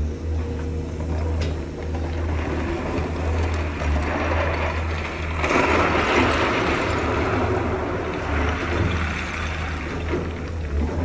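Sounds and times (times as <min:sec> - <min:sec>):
heavy diesel engine running: 0:00.0 - 0:11.0.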